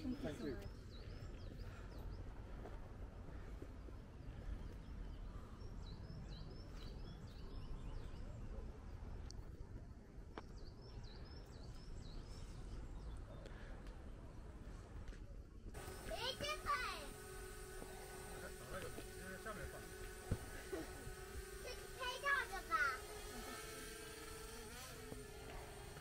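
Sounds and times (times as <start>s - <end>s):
songbird chirping: 0.0s - 9.5s.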